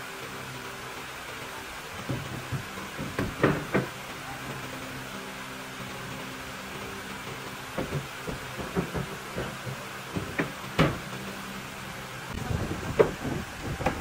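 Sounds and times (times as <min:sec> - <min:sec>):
steady low hum: 0:00.0 - 0:14.0
wooden boards knocking: 0:02.0 - 0:04.0, 0:07.3 - 0:11.1, 0:12.7 - 0:14.0.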